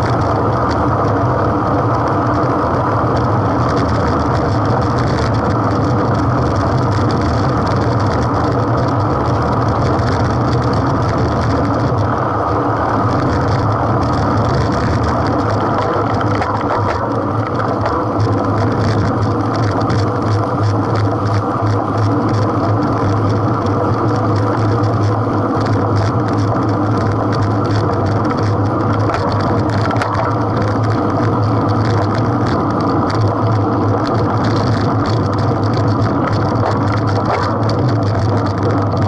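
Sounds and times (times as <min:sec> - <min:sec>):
faint ticking of bicycle drivetrain: 0:00.0 - 0:39.0
wind and road noise: 0:00.0 - 0:39.0.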